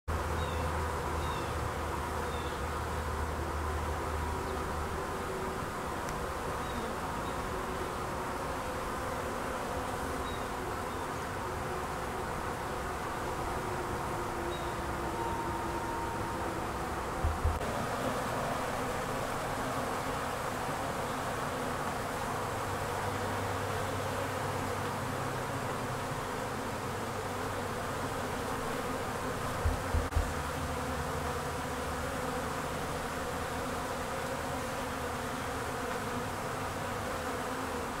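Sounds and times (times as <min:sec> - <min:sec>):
honey bees buzzing: 0:00.1 - 0:38.0
low thumps: 0:17.2 - 0:17.6, 0:29.6 - 0:30.4.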